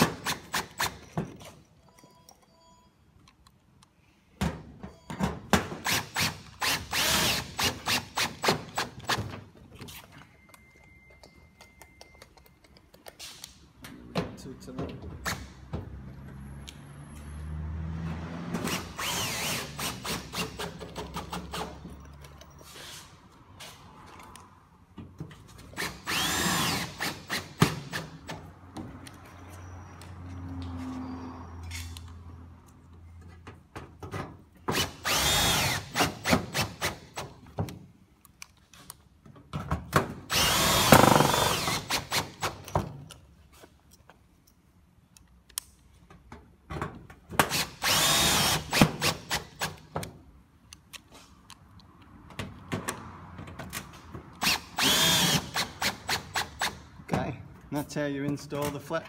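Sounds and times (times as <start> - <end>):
cordless drill driving screws: 5.8 - 9.2, 18.7 - 21.8, 25.8 - 28.2, 34.7 - 37.3, 40.3 - 42.7, 47.4 - 49.9, 54.4 - 56.8.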